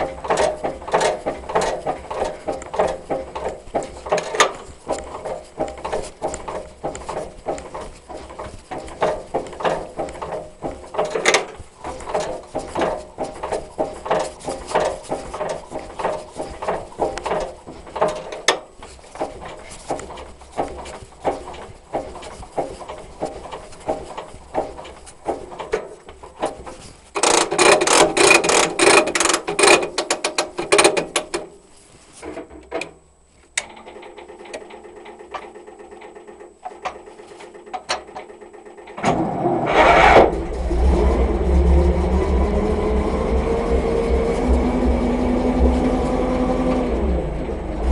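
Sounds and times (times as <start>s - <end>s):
control clicks and knocks: 0.0s - 31.6s, 32.2s - 39.4s
petrol engine starting and revving: 38.6s - 47.9s.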